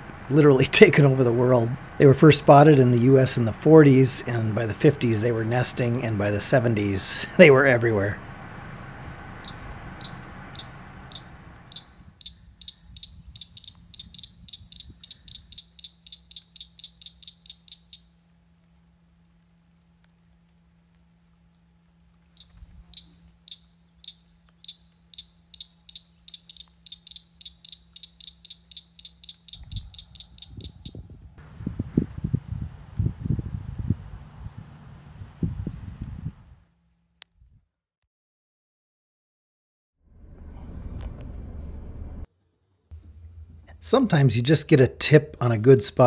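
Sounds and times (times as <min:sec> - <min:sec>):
birds whistling calls: 0:09.4 - 0:20.4, 0:21.0 - 0:34.8.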